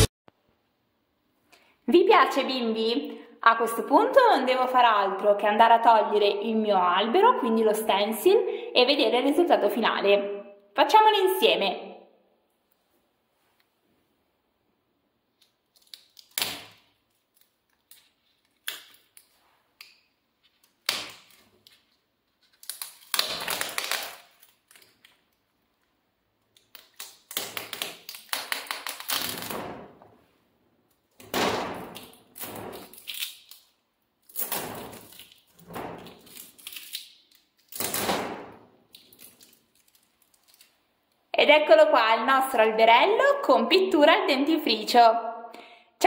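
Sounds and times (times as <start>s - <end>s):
paper rustling and crackling: 39.0s - 40.7s.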